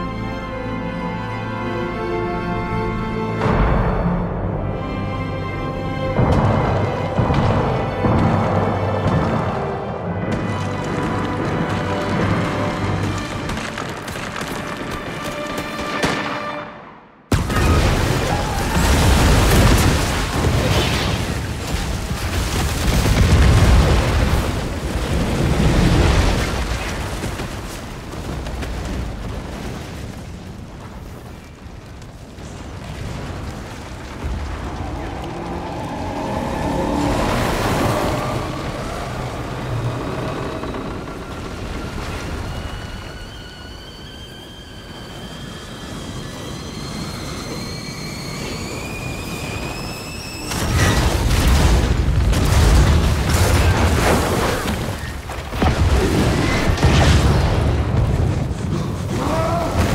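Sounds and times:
faint film music score: 0:00.0 - 0:32.9, 0:33.7 - 0:59.9
explosion blast and rumble: 0:06.1 - 0:14.8, 0:17.3 - 0:39.8, 0:50.5 - 0:59.9.

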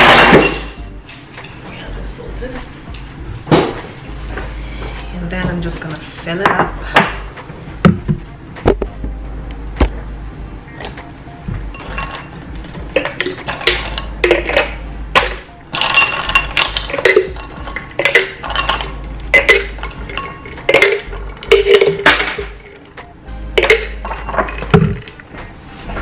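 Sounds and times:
kitchenware clinking: 0:00.0 - 0:01.9, 0:11.7 - 0:23.0, 0:23.6 - 0:25.3.

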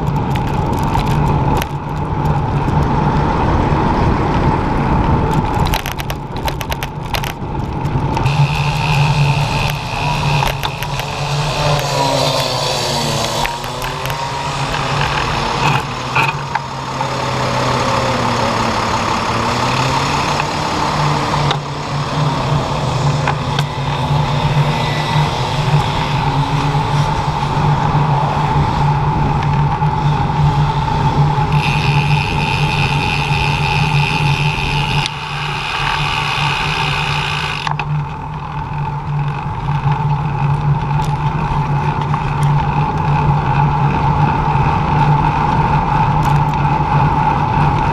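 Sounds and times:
street traffic hum: 0:00.0 - 0:47.9
motor vehicle engine revving: 0:06.7 - 0:47.9.

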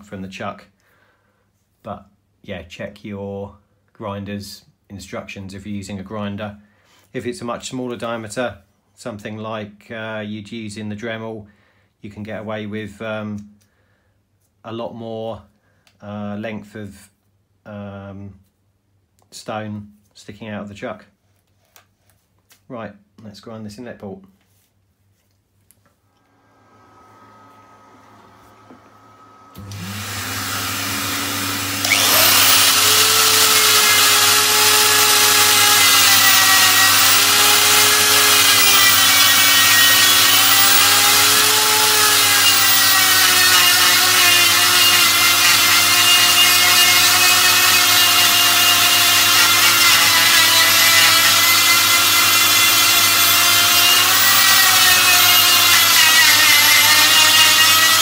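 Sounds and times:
die grinder motor whine: 0:26.2 - 0:58.0.

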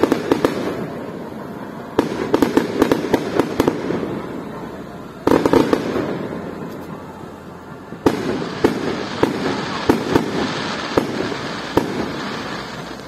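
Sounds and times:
firework pops: 0:00.0 - 0:01.2, 0:08.0 - 0:13.0
firework loud bang: 0:00.0 - 0:07.1, 0:07.9 - 0:13.0
crackling firework reports: 0:00.0 - 0:13.0.

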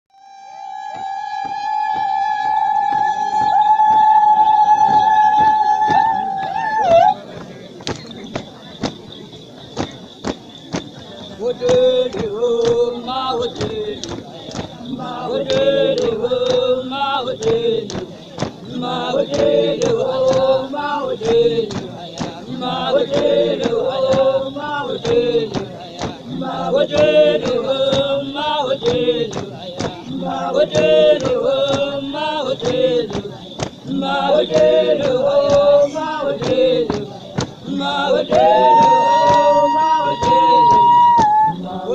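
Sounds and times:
sharp steady beat: 0:07.4 - 0:41.5
women singing as a group: 0:11.3 - 0:41.9.

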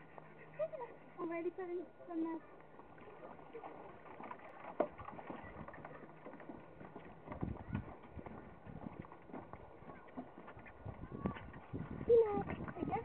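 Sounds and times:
dog paws tapping on boards: 0:04.0 - 0:13.0
footsteps on wooden boards: 0:04.0 - 0:13.0.

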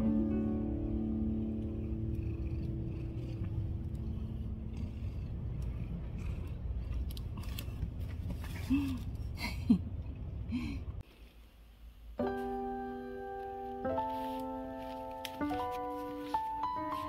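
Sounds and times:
piano music: 0:00.0 - 0:05.8, 0:12.2 - 0:17.0
low outdoor rumble: 0:00.0 - 0:12.2.

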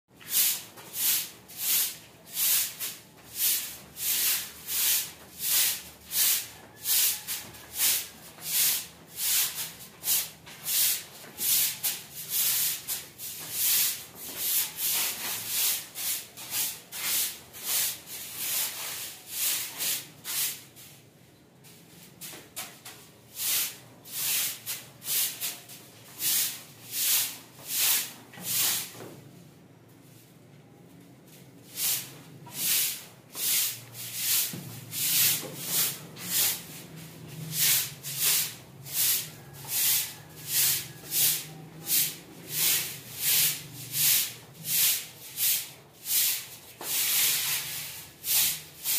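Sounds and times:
broom sweeping concrete floor: 0:00.2 - 0:48.9.

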